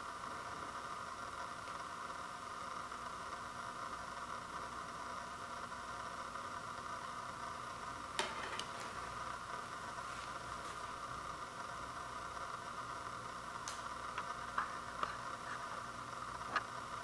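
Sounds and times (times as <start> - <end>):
steady hiss: 0.0 - 17.0
compact disc tapping on wooden floor: 8.2 - 9.0.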